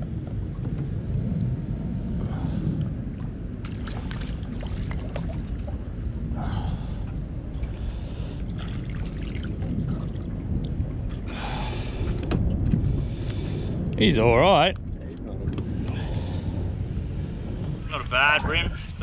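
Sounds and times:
wind rumble: 0.0 - 19.0
water splashing and trickling: 2.2 - 16.6.

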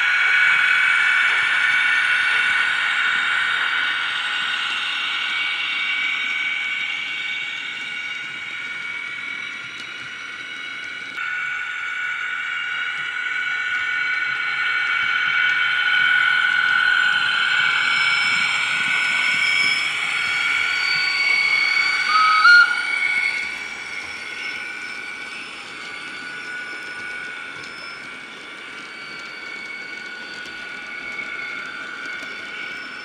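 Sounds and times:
high-pitched wheel squeal: 15.9 - 33.0
short loud squeak: 20.7 - 25.4.

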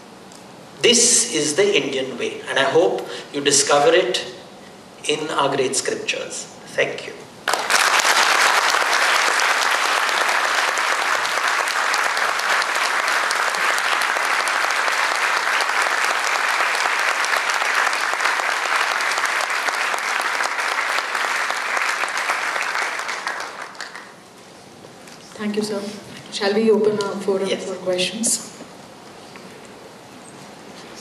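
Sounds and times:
audience applauding: 7.4 - 24.2.

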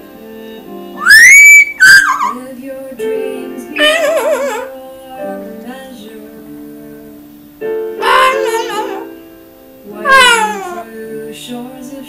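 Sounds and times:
woman singing with wavering voice: 0.0 - 7.4, 8.0 - 9.1, 9.8 - 12.0
parrot singing: 1.0 - 2.5, 3.8 - 4.7, 8.0 - 9.1, 10.0 - 10.9.

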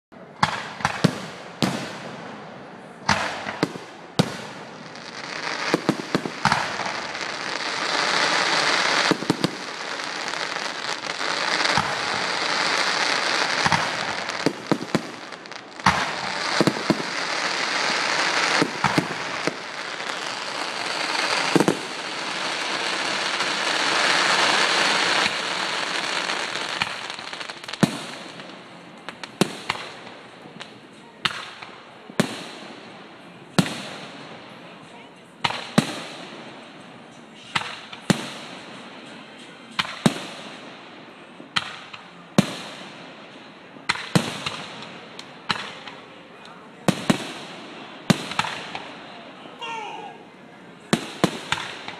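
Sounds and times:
firework crackle: 3.0 - 34.6, 41.5 - 50.0, 50.9 - 51.9.

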